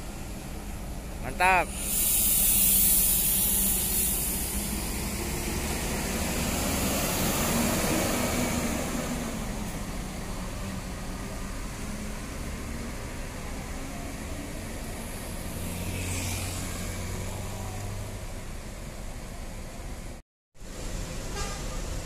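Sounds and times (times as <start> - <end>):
coach diesel engine pulling away: 0.0 - 15.8.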